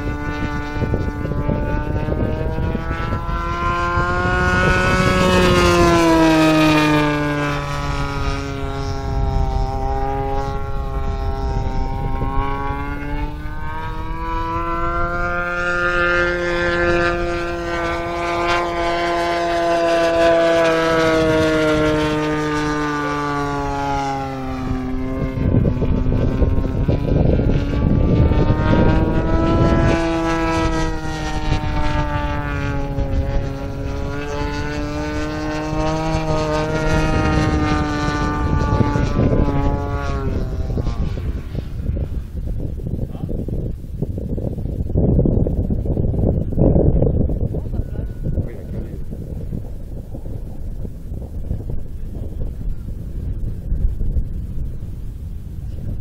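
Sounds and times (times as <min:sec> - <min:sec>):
model plane engine and propeller: 0:00.0 - 0:56.0
rough rushing noise: 0:00.0 - 0:56.0.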